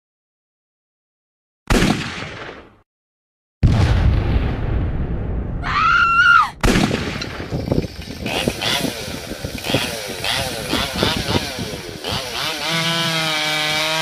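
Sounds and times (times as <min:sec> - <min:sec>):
sudden boom: 0:03.6 - 0:07.6
chainsaw running: 0:07.4 - 0:14.0.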